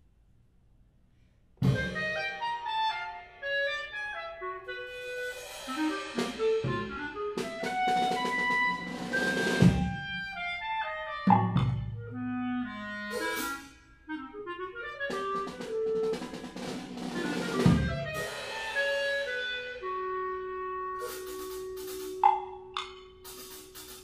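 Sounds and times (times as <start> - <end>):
drum kit with cymbals: 1.6 - 2.5, 4.7 - 10.7, 12.9 - 13.8, 15.0 - 24.0
clarinet melody: 1.6 - 23.2.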